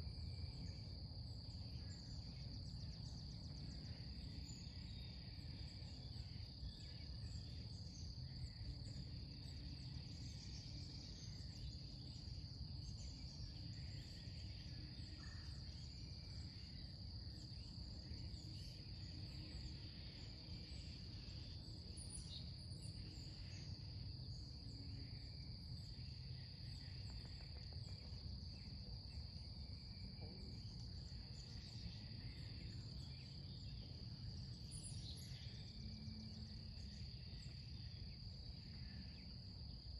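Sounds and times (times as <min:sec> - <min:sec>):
crickets chirping: 0:00.0 - 0:39.9.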